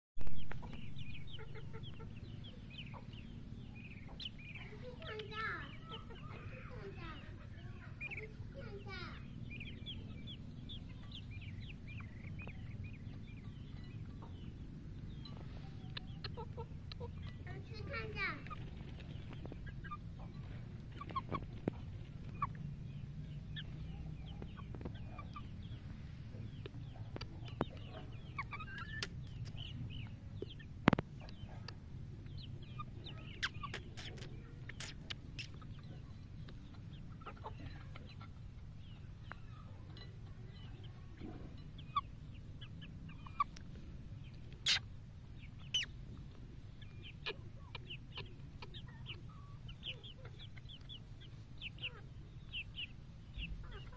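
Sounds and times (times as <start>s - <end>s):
young chickens clucking and chirping: 0.2s - 53.9s.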